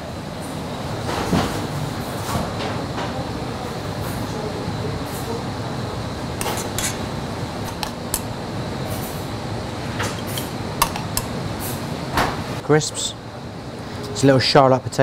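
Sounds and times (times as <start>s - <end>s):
metal spoon clinking on pan: 7.7s - 8.3s, 10.2s - 11.4s.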